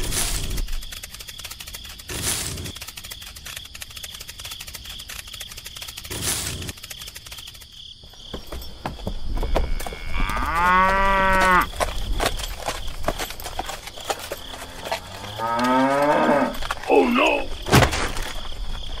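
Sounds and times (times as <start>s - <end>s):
cow mooing: 9.5s - 11.7s, 14.4s - 16.6s.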